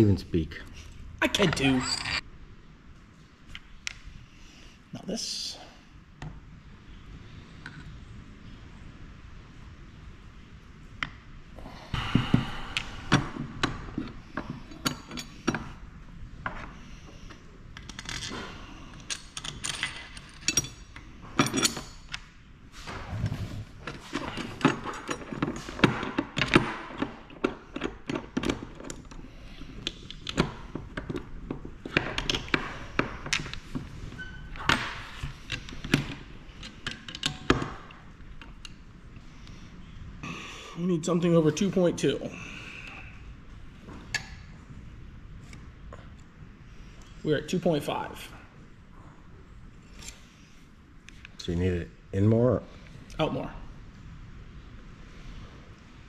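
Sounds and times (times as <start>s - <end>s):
metal tools clicking and clinking: 1.4s - 2.2s, 14.5s - 15.6s, 17.8s - 22.2s.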